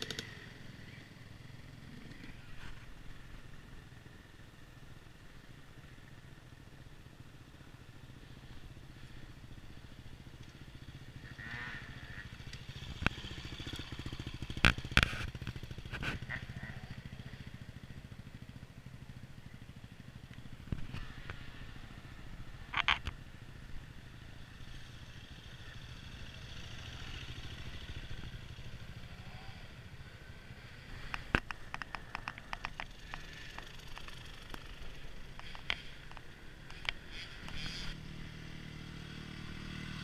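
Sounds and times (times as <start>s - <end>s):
dirt bike engines low revs: 0.0s - 3.6s, 8.4s - 17.6s.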